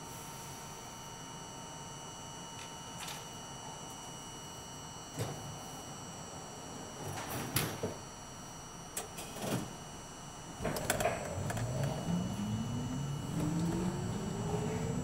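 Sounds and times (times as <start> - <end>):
train traction motor whine: 8.2 - 15.0
subway car clunks: 10.6 - 15.0.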